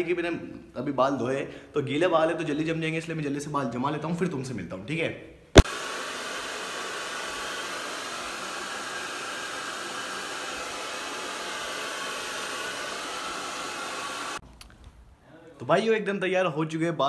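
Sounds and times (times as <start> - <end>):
hair dryer running: 5.6 - 14.4.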